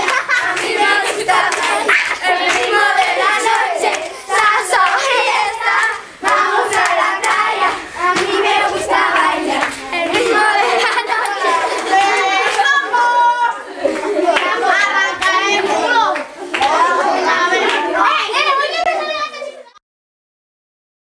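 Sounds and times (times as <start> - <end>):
hand claps: 0.0 - 4.1, 5.8 - 7.4, 8.1 - 8.4, 16.2 - 16.8
children singing and calling out: 0.0 - 19.8.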